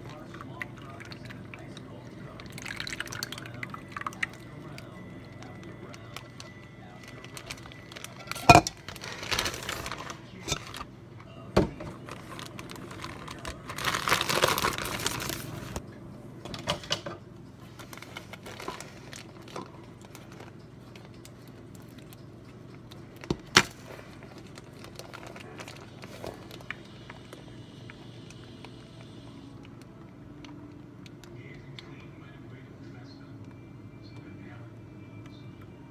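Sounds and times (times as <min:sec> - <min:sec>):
plastic bag crinkling: 0:05.3 - 0:10.9, 0:11.9 - 0:15.8, 0:17.6 - 0:22.2, 0:23.1 - 0:26.8.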